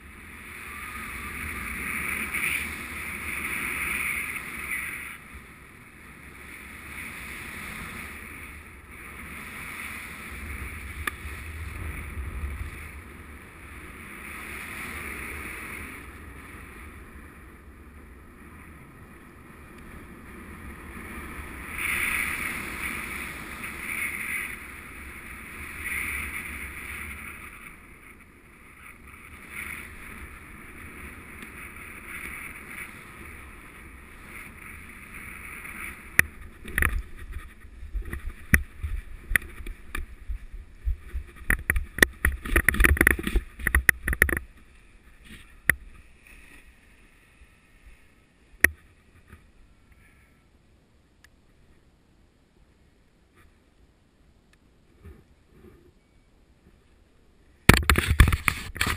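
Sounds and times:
wind rushing over microphone: 0.0 - 49.4
deep rumble: 10.2 - 14.2, 36.0 - 46.2.

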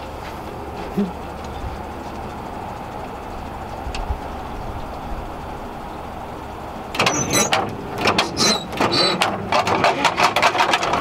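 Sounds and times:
low engine rumble: 0.0 - 11.0
metal clicking and rattling: 6.9 - 11.0
short squeaks: 7.0 - 11.0.

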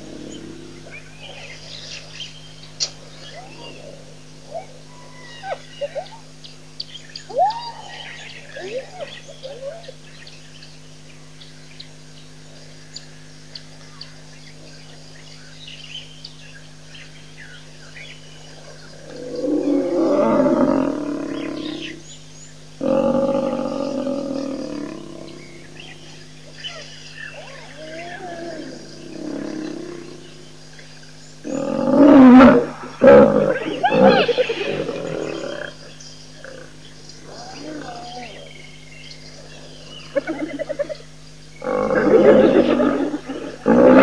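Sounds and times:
steady low hum: 0.0 - 44.0
hyenas whooping: 3.2 - 6.3, 7.3 - 10.0, 22.8 - 30.4, 31.4 - 38.6, 39.3 - 44.0
loud drawn-out animal call: 18.6 - 22.0, 22.8 - 30.6, 31.4 - 44.0.

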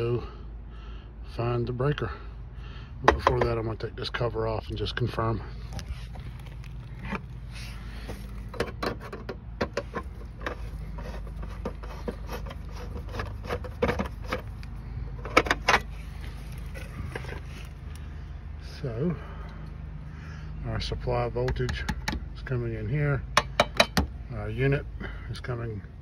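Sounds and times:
clicks and knocks on metal box: 8.5 - 10.6, 21.4 - 22.3, 23.4 - 24.1.

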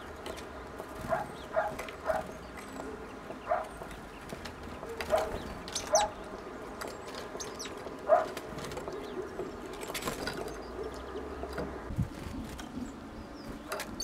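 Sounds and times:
faint high bird chirps: 5.0 - 6.2.

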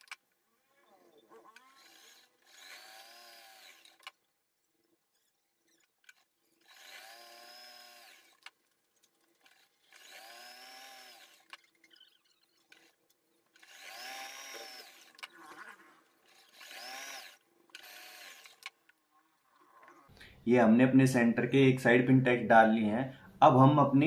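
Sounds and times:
small clicks: 0.0 - 0.4, 1.0 - 20.3
sewing machine stitching: 0.9 - 4.2, 5.1 - 18.9.

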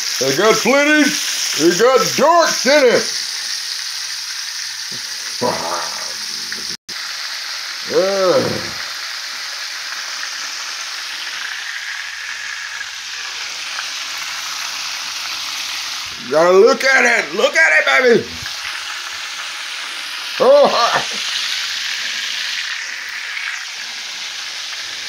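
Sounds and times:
chicken frying in hot oil: 0.0 - 25.0
brief vocal sounds: 5.4 - 6.2, 7.9 - 8.8.

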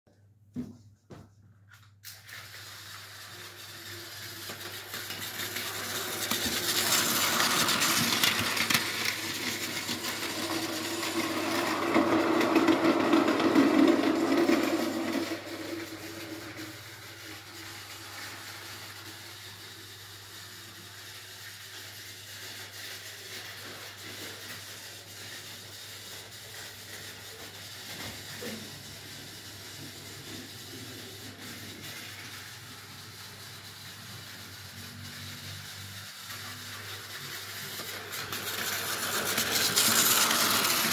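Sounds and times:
toy train motor whirring: 2.0 - 40.9
wheels rattling on plastic track: 2.1 - 40.9.

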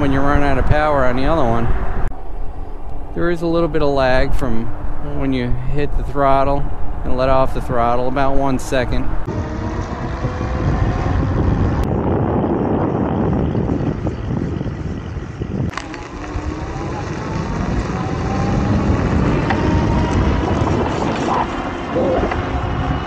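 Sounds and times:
wind buffeting microphone: 0.0 - 23.0
tyres running on asphalt: 8.3 - 23.0
electric motor whine: 9.3 - 23.0.

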